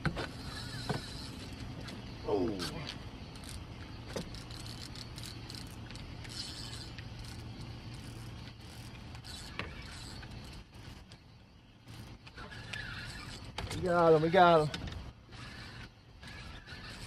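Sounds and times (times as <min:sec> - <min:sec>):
steady low hum: 0:00.0 - 0:17.0
fishing reel clicking: 0:02.6 - 0:11.2, 0:15.3 - 0:17.0.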